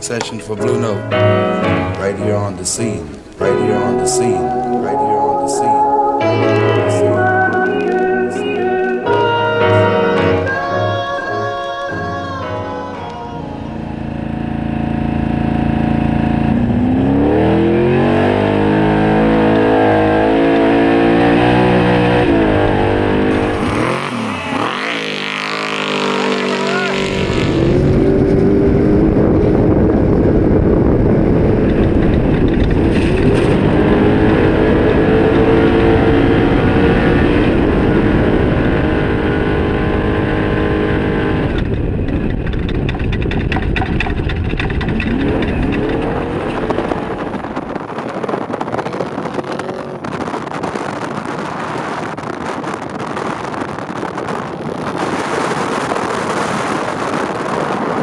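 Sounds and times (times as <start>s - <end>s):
truck engine running hard: 13.5s - 58.0s
wind and dirt noise: 14.1s - 58.0s.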